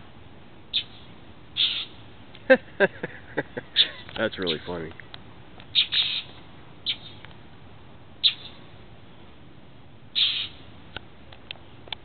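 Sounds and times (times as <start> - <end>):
birds making harsh scolding calls: 0.7 - 2.0, 3.7 - 4.8, 5.6 - 7.3, 8.2 - 8.7, 10.1 - 10.7.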